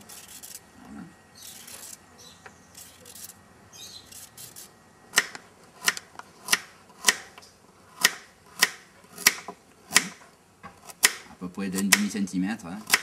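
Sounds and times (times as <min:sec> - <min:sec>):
peeler scraping carrot: 0:00.0 - 0:00.6, 0:01.4 - 0:02.0, 0:02.7 - 0:04.7, 0:11.6 - 0:12.2
knife chopping on wooden board: 0:08.0 - 0:10.2, 0:10.8 - 0:12.2.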